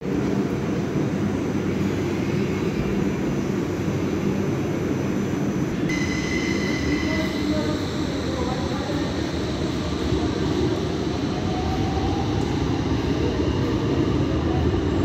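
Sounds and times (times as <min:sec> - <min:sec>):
tram rumbling on rails: 0:00.0 - 0:15.0
high steady whine: 0:05.4 - 0:14.3.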